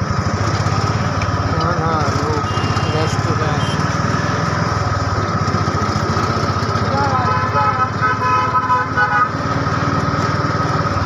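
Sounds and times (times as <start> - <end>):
vehicle horn short toots: 2.4 - 3.9, 7.3 - 9.3.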